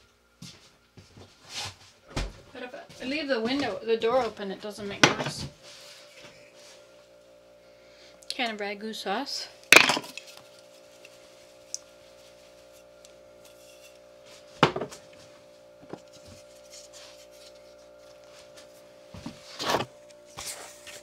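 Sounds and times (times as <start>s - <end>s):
refrigerator humming: 0.0s - 21.0s
kitchen things knocking on counter: 14.6s - 15.0s.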